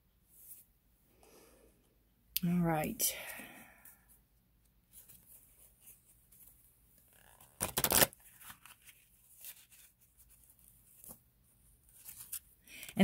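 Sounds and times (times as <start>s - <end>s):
rustles of card handling: 4.9s - 13.0s
cards being shuffled: 5.0s - 11.2s.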